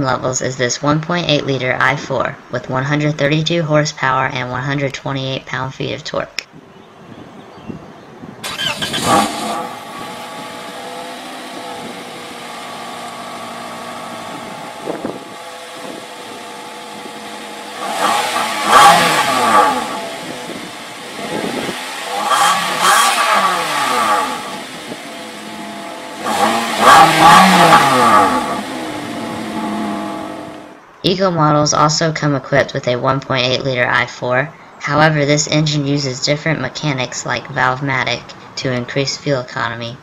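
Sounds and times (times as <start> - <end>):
car engine revving: 8.4 - 30.8
car engine starting and idling: 8.4 - 30.8.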